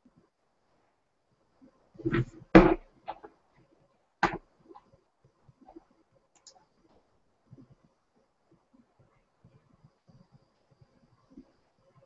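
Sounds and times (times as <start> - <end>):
box knocks and clicks: 4.2 - 4.4
faint ticks: 4.7 - 12.0.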